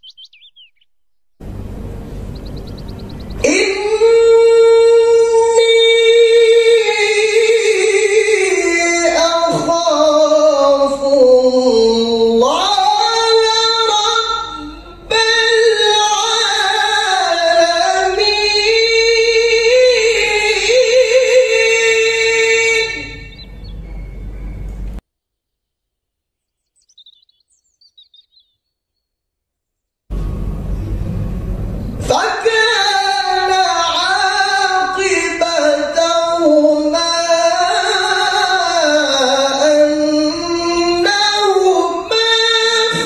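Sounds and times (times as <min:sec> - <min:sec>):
man chanting in long melismatic notes: 0:03.4 - 0:23.3.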